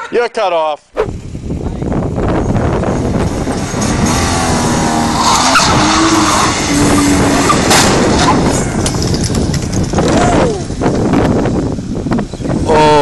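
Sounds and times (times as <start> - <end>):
car engine revving: 2.5 - 10.2
tyres skidding and squealing: 3.1 - 11.0.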